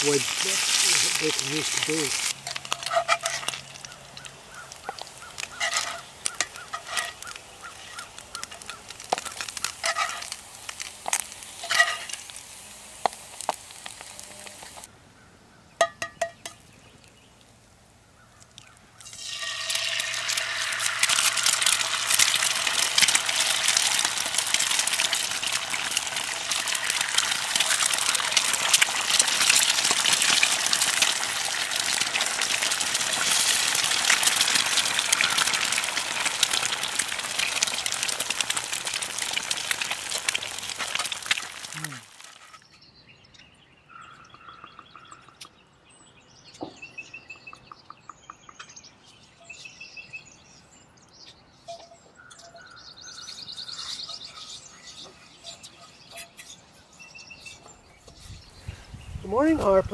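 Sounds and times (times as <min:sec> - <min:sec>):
eggs sizzling in hot fat: 0:00.0 - 0:14.9, 0:19.0 - 0:42.6.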